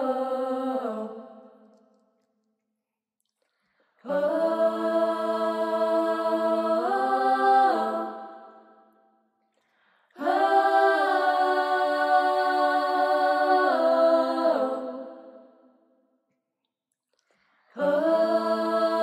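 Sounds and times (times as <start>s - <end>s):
girls singing a cappella in harmony: 0.0s - 1.6s, 4.0s - 8.8s, 10.1s - 15.5s, 17.7s - 19.0s.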